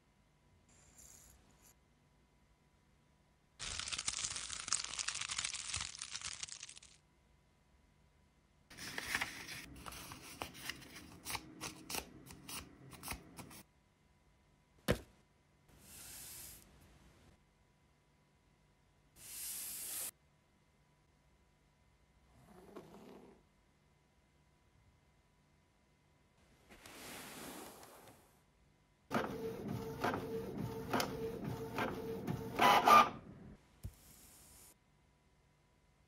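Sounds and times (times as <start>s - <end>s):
paper rustling and tearing: 3.6s - 7.0s, 8.7s - 13.6s.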